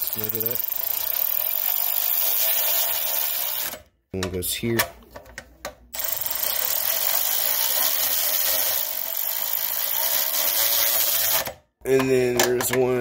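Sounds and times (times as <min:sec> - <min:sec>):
ratchet wrench clicking: 0:06.0 - 0:11.5.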